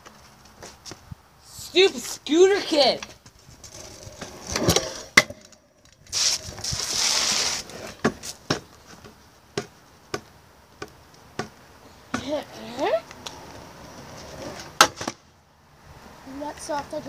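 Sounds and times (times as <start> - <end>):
scooter wheels rolling on concrete: 0.0 - 15.4, 16.2 - 17.0
scooters clacking on concrete: 1.8 - 5.6.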